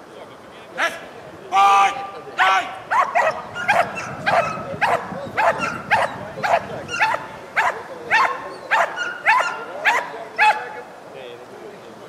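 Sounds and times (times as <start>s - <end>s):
dog barking: 2.9s - 10.8s.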